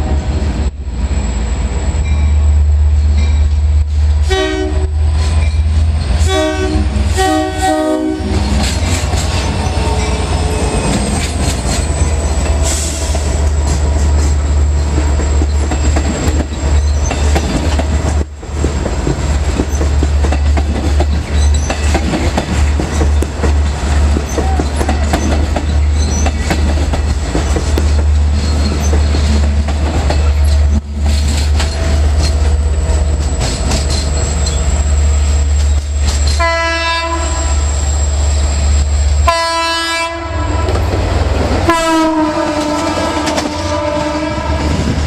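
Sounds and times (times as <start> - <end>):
train passing with rumble: 0.0 - 45.0
train horn blasts: 4.2 - 5.4, 6.2 - 8.6, 36.3 - 37.8, 39.2 - 40.9, 41.6 - 44.9
wheel clatter on rails: 13.6 - 34.6.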